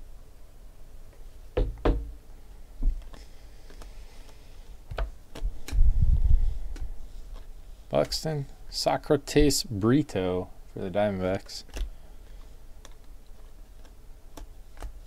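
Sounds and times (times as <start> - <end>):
cards rubbing: 3.0 - 8.4, 11.2 - 15.0
cards knocking and tapping: 11.3 - 15.0.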